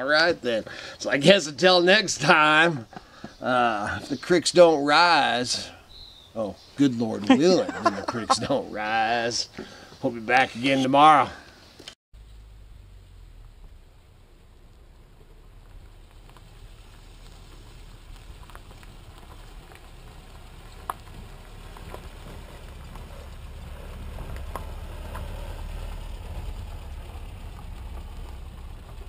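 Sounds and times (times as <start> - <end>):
pickup truck driving on dirt: 12.2 - 29.0.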